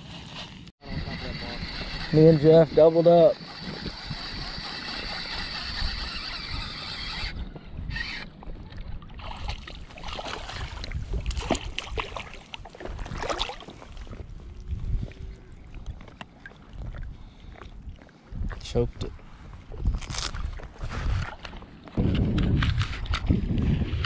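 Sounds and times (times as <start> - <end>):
water hissing and lapping: 7.9 - 18.4.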